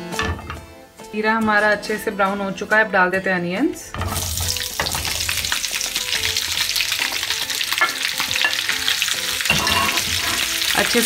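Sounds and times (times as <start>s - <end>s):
onions sizzling in hot oil: 4.0s - 11.0s.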